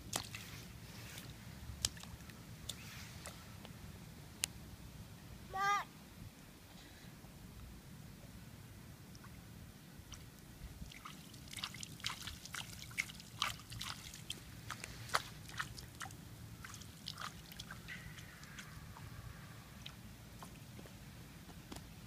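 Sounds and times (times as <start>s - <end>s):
toddler splashing in puddle: 10.9s - 18.7s.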